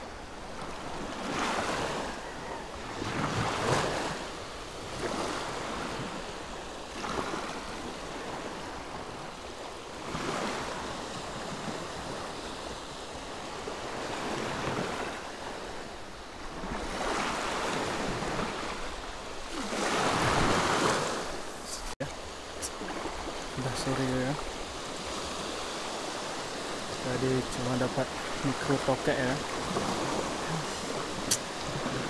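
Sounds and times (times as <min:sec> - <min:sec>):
small waves washing on beach: 0:00.0 - 0:32.0.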